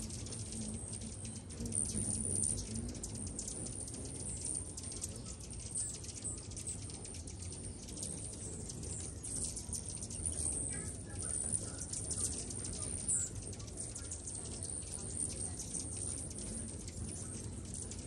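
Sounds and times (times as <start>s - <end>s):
hummingbirds chipping and chittering: 0.0s - 18.0s.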